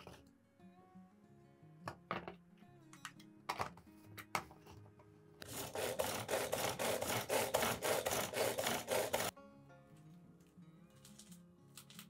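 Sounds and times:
food chopper rasping: 5.4 - 9.3.

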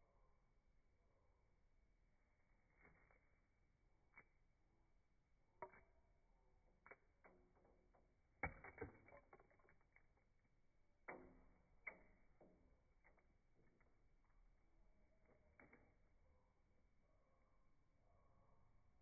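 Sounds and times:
bird pecking on wooden tray: 6.7 - 10.4.

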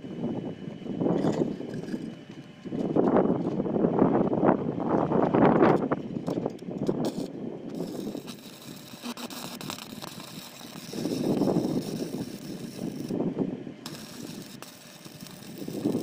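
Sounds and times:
arc welding crackling hiss: 6.2 - 16.0.

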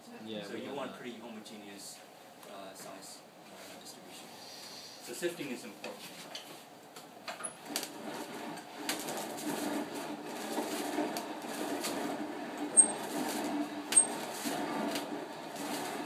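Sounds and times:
crank scraping through sand: 7.7 - 16.0.

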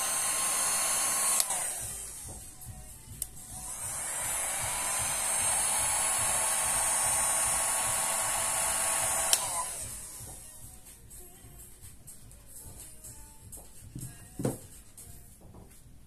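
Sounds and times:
heat gun blowing: 0.0 - 10.4.

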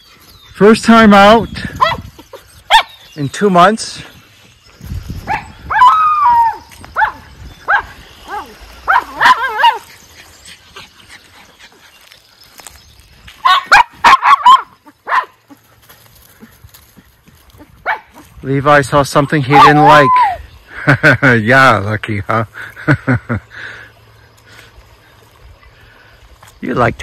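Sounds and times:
dogs barking: 1.7 - 3.0, 5.2 - 11.6, 13.4 - 15.7, 17.6 - 18.3, 19.4 - 20.4.

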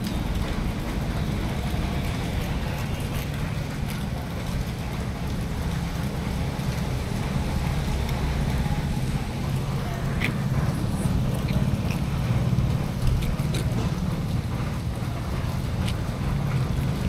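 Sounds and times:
cats eating clicks: 0.0 - 17.0
deep rumble: 0.0 - 17.0
heavy rain: 0.0 - 17.0.

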